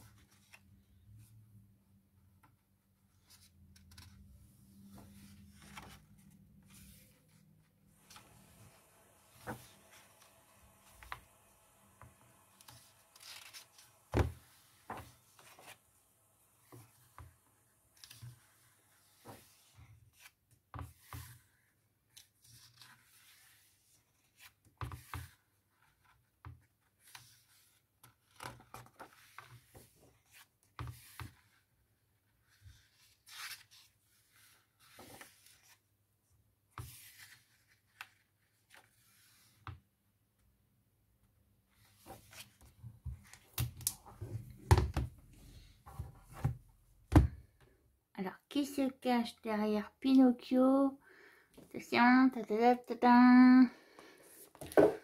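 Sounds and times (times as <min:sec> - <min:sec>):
book pages turning: 0:03.1 - 0:21.5, 0:32.5 - 0:35.8, 0:36.8 - 0:39.6.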